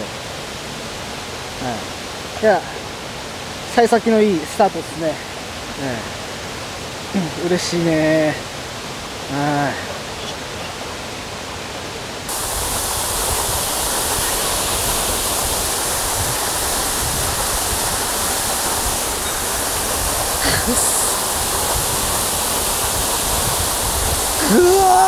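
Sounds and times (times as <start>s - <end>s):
stream water rushing: 0.0s - 25.0s.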